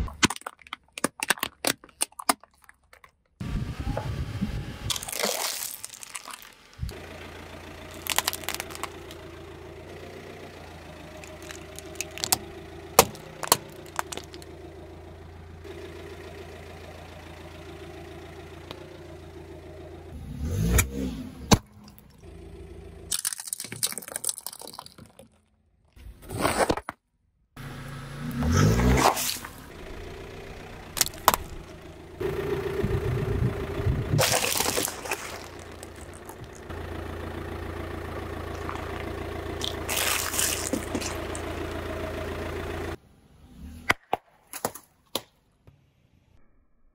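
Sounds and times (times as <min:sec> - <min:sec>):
tyre crushing small objects: 0:00.0 - 0:03.4, 0:04.9 - 0:07.0, 0:07.8 - 0:09.2, 0:11.1 - 0:14.5, 0:23.1 - 0:27.1, 0:31.0 - 0:31.7, 0:34.2 - 0:36.7, 0:38.5 - 0:41.5
car engine idling: 0:03.4 - 0:23.1, 0:27.6 - 0:43.4
loud crunching bursts: 0:04.9 - 0:09.3, 0:11.1 - 0:14.5, 0:34.1 - 0:36.8, 0:38.5 - 0:41.6.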